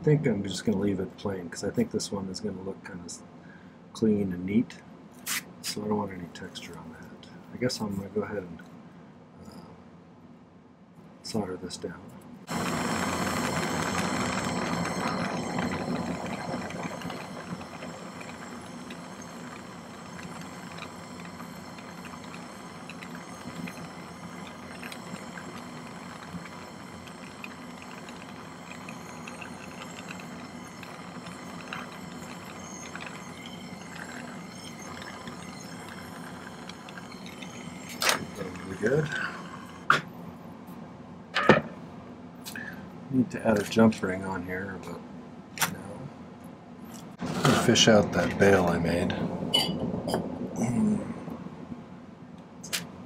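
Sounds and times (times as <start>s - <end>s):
soldering torch hissing: 12.5s - 39.9s.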